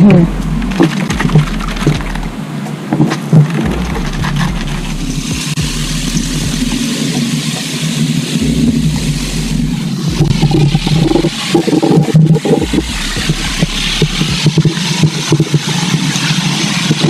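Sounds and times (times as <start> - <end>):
hiss of spray: 5.0 - 17.0.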